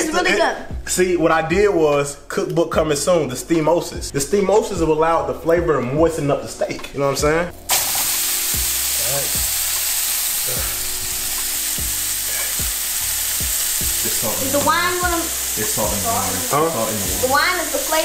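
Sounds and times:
steak sizzling in a frying pan: 7.6s - 18.0s.

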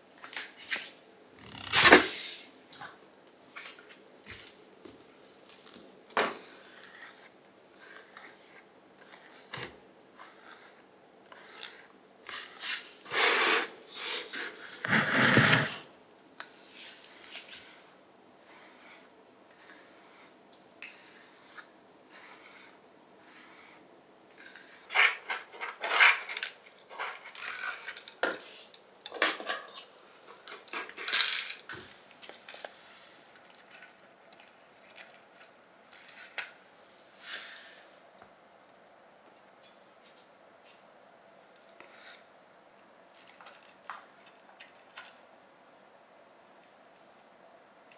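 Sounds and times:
plastic brush scraping on floor: 0.6s - 2.4s, 11.4s - 15.9s
brush strokes through cat fur: 16.5s - 20.4s.

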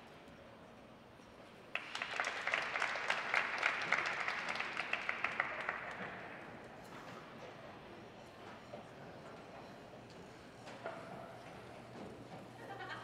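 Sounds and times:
audience applauding: 1.7s - 6.5s.

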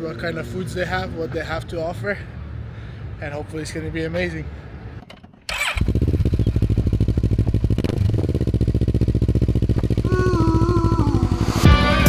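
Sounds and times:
motorcycle engine idling: 4.9s - 11.5s.

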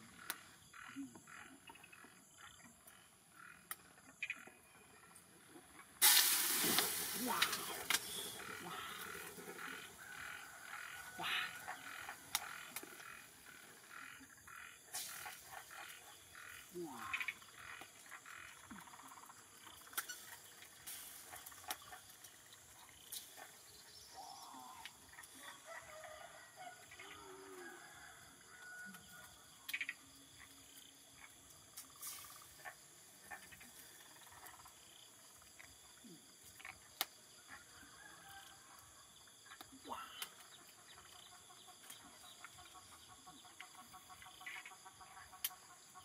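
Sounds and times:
wood fire crackling: 6.0s - 13.6s
animal calls: 7.0s - 18.9s.

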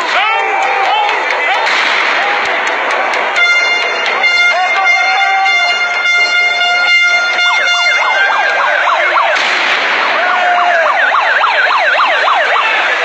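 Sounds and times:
street noise: 0.0s - 13.0s
horn steady tone: 3.3s - 9.4s
siren sweeping up and down: 3.4s - 9.4s, 10.0s - 13.0s.

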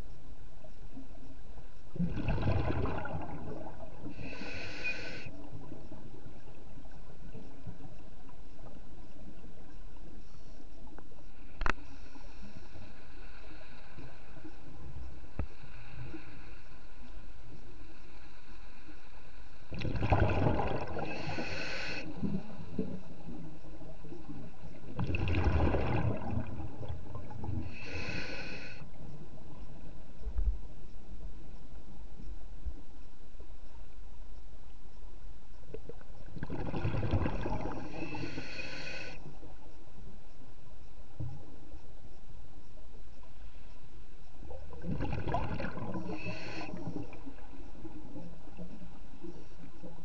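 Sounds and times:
steady underwater hiss: 0.0s - 50.0s
exhaled bubbles rumbling: 1.9s - 4.2s, 19.7s - 21.4s, 23.8s - 27.7s, 36.3s - 38.2s, 44.6s - 48.8s
regulator hissing on inhale: 4.0s - 5.6s, 10.2s - 19.7s, 20.9s - 23.2s, 27.4s - 29.0s, 37.6s - 39.5s, 45.9s - 47.4s.

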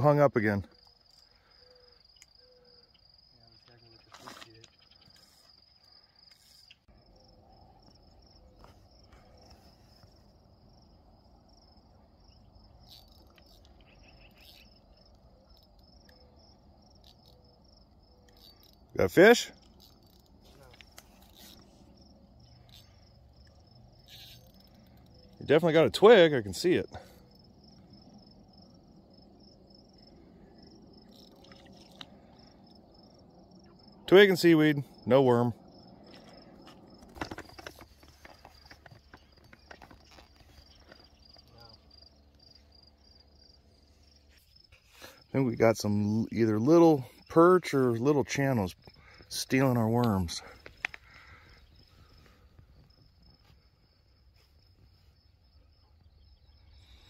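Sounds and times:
crickets chirping: 0.0s - 57.0s.

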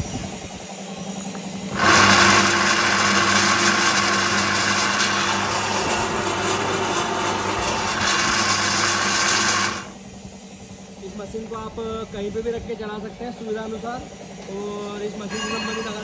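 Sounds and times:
pellet mill running loudly: 1.7s - 10.0s.

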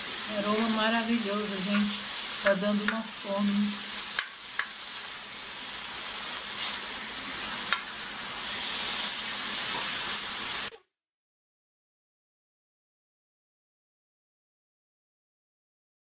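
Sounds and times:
meat sizzling on griddle: 0.0s - 10.7s.

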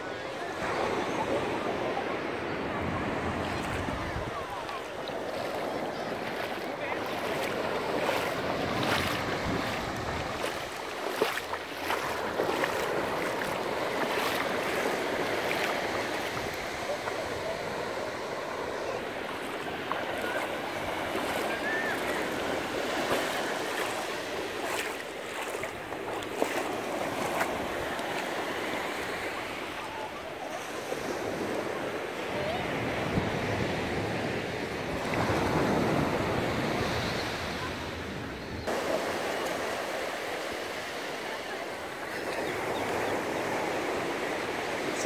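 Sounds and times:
surf washing over shallows: 0.0s - 45.0s
small water splashes: 3.5s - 17.1s, 19.0s - 28.3s.

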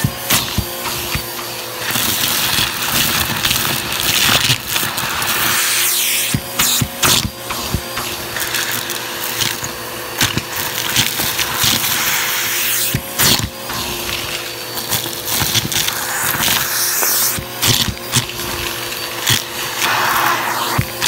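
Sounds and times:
vacuum cleaner motor humming: 0.0s - 21.0s.

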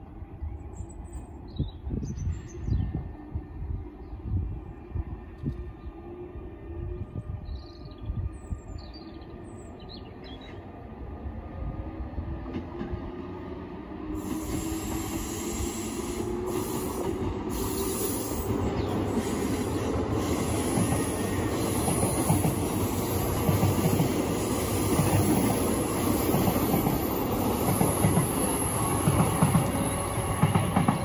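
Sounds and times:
train rumble: 0.0s - 31.0s
high wheel squeal: 14.2s - 18.5s.

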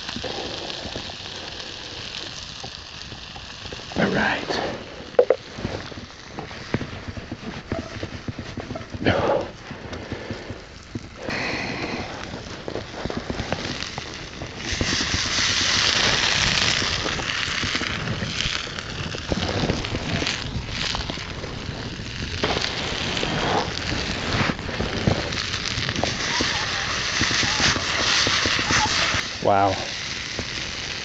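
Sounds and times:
potatoes sizzling in a skillet: 0.0s - 31.0s
wood fire crackling: 0.0s - 31.0s.

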